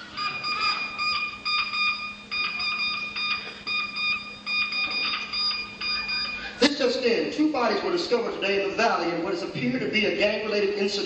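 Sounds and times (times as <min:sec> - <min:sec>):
electronic alarm beeping: 0:00.0 - 0:06.7.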